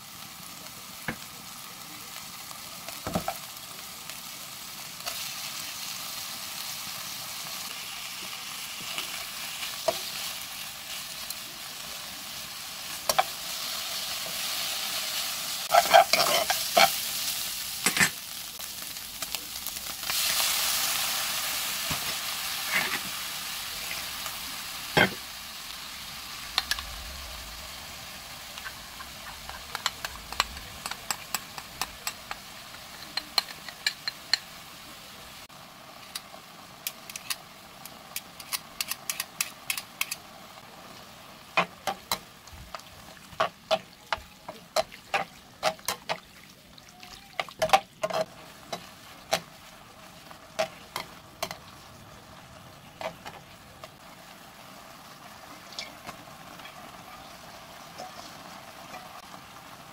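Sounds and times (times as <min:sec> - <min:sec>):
noodles sizzling in a wok: 0:00.0 - 0:59.9
metal tongs clicking and scraping: 0:29.2 - 0:32.4, 0:38.1 - 0:40.2.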